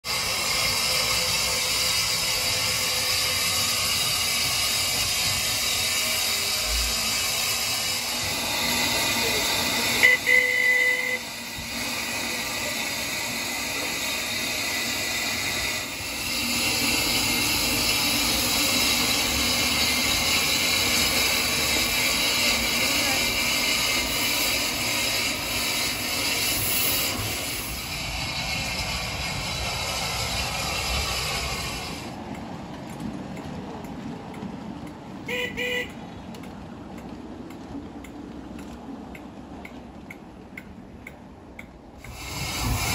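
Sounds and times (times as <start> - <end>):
steam hissing: 0.0 - 32.6, 41.9 - 42.9.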